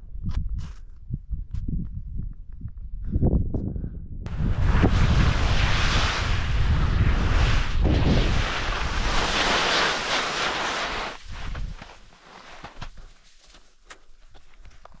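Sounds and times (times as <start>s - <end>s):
wind over microphone: 0.0s - 12.1s
ski boot clicks and scrapes: 7.1s - 15.0s.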